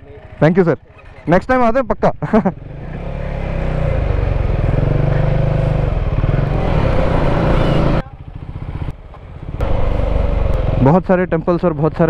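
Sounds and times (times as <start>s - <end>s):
motorcycle engine accelerating: 2.3s - 11.5s.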